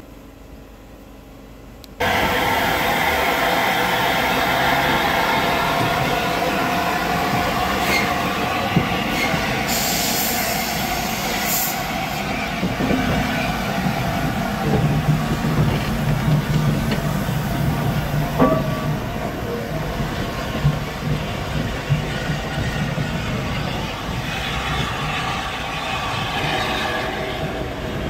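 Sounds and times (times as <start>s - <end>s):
hiss: 2.0s - 18.3s
train wheels and carriages: 2.0s - 28.0s.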